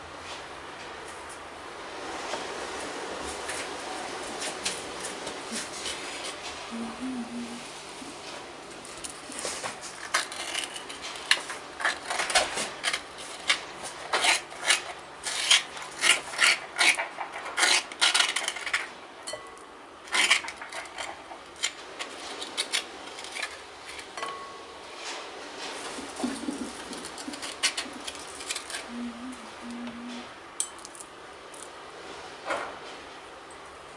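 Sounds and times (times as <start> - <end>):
spoon scraping avocado: 9.0 - 18.9.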